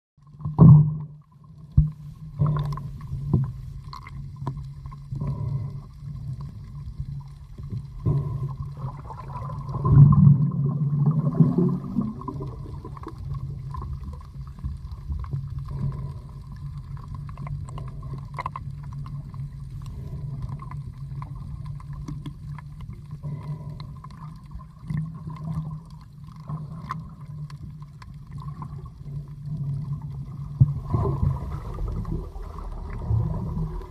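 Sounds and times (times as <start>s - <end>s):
underwater clicks and knocks: 0.2s - 5.6s, 16.9s - 28.7s
muffled water noise: 0.2s - 33.9s
underwater low hum: 0.2s - 33.9s
rush of water: 28.3s - 33.9s.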